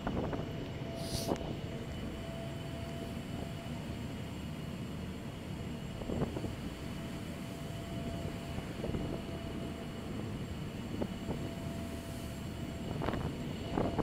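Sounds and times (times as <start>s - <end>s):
ferry engines rumbling: 0.0s - 14.0s.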